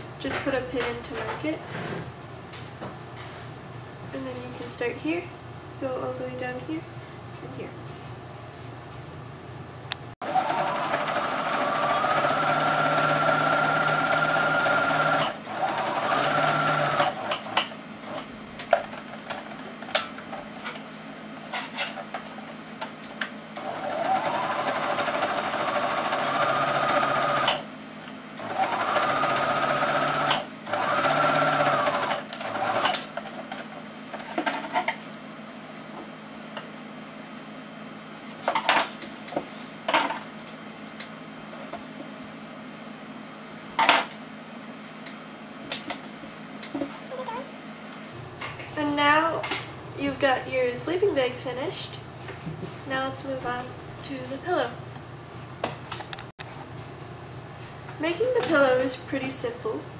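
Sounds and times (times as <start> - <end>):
sewing machine stitching: 10.2 - 18.2, 23.6 - 27.6, 28.4 - 33.2.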